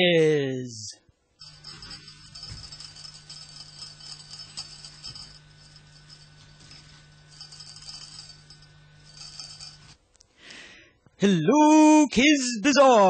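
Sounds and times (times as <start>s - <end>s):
faint jingling rattle: 1.4s - 10.0s.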